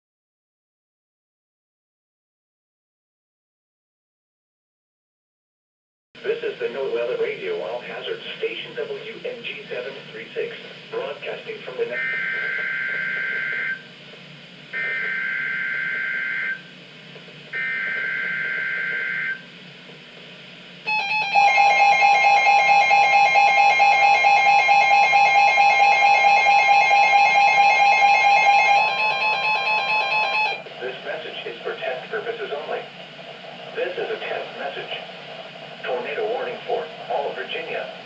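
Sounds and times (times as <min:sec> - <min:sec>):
steady warning alarm tone: 0:11.8 - 0:14.0, 0:14.7 - 0:16.8, 0:17.5 - 0:19.6, 0:20.8 - 0:38.0
loud pulsing alert alarm: 0:11.9 - 0:13.9, 0:14.7 - 0:16.7, 0:17.5 - 0:19.5, 0:20.9 - 0:30.7.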